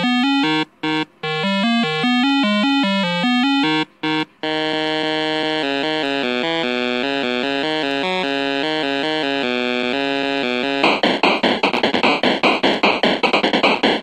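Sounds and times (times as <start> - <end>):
held synth notes: 0.0 - 11.0
buzzy synth melody: 0.0 - 13.3.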